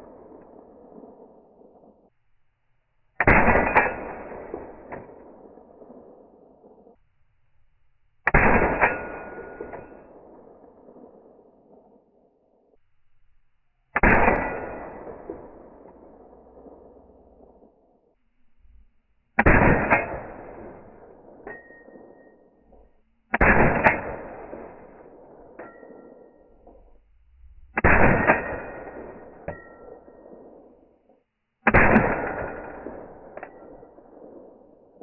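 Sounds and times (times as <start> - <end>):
suppressed rifle shots: 3.2 - 7.0, 8.2 - 12.0, 13.9 - 17.8, 19.4 - 22.7, 23.3 - 26.5, 27.8 - 30.9, 31.6 - 35.0.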